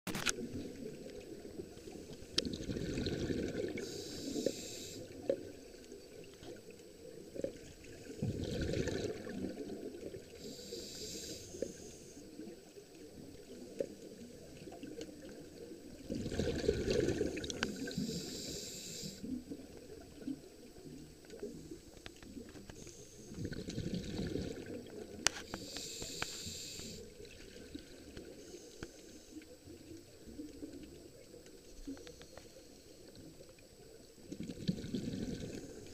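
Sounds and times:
diver breathing through regulator: 3.6s - 5.2s, 10.4s - 12.2s, 17.2s - 19.3s, 25.3s - 27.1s.

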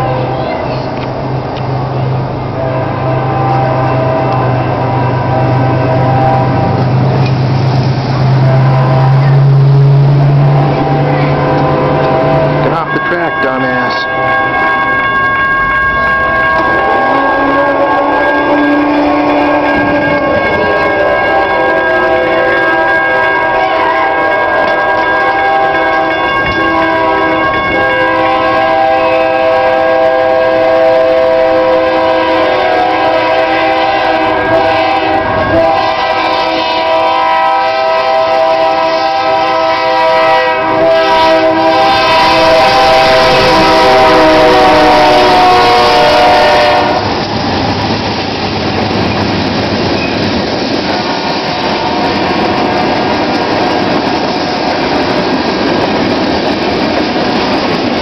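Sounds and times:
freight cars rumbling and clattering: 0.0s - 14.0s, 47.0s - 58.0s
train air horn chord: 2.6s - 6.9s, 8.2s - 47.1s, 51.0s - 53.8s.

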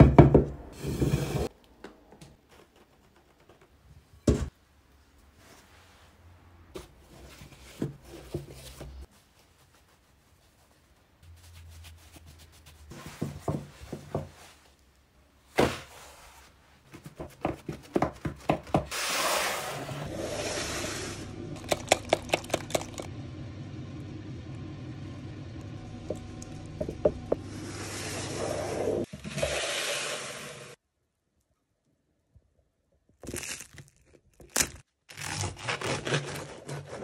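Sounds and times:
steady low hum: 21.2s - 27.6s.

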